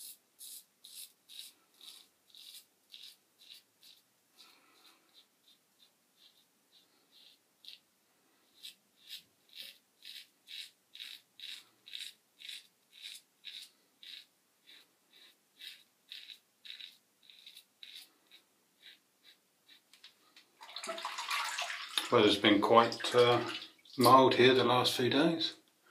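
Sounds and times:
razor scraping stubble: 0.0s - 20.1s.

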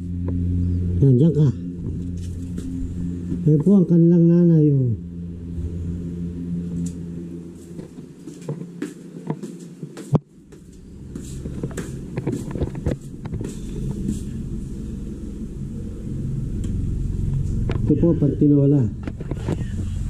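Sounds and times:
camera handling rumble: 11.4s - 14.2s.

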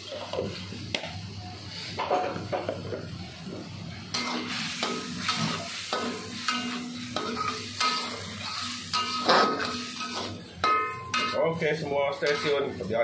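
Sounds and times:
sauce sizzling: 3.2s - 13.0s
metal spatula scraping a wok: 4.1s - 12.9s.

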